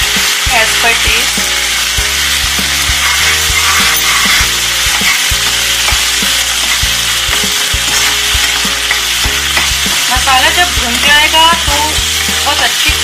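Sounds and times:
masala sizzling in hot oil: 0.0s - 13.0s
background music with low beat: 1.0s - 13.0s
steel spatula scraping pan: 2.6s - 10.0s.

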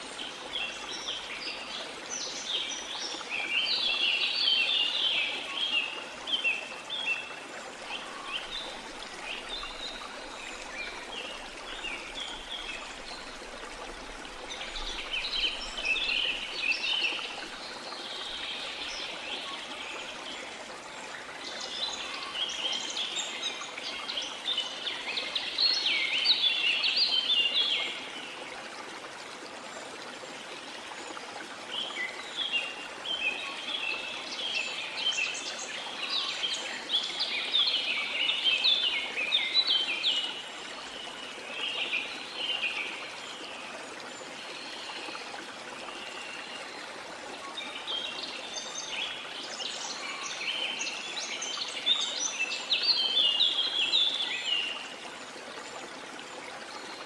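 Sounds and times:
songbirds chirping: 0.0s - 29.6s
flowing water: 0.0s - 57.0s.

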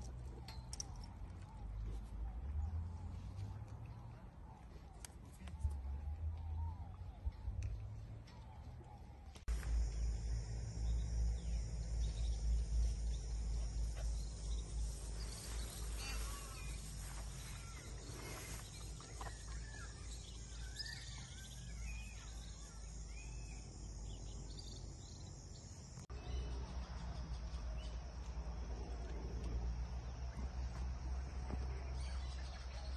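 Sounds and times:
birds chirping: 0.0s - 32.9s
insect hiss: 9.5s - 19.3s.

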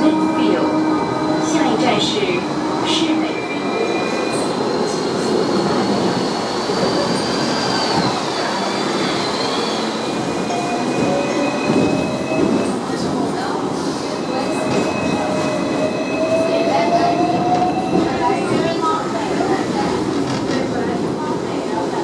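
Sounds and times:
tram wheels squealing: 0.0s - 19.5s.

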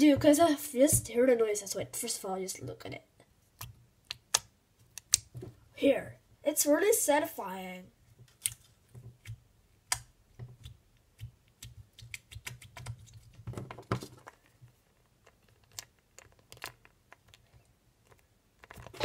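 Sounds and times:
slime squelching and clicking: 3.5s - 5.3s, 8.3s - 13.4s, 14.4s - 19.0s.

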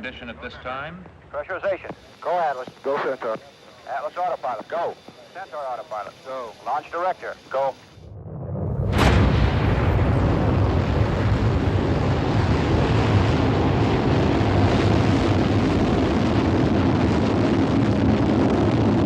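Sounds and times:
rocket exhaust deep rumble: 8.0s - 19.0s.

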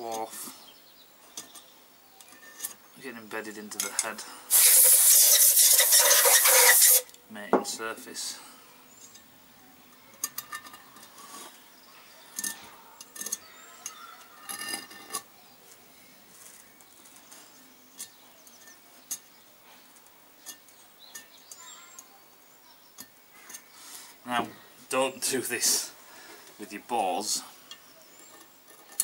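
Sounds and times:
hand tool scraping metal: 3.7s - 7.1s, 12.4s - 15.3s.

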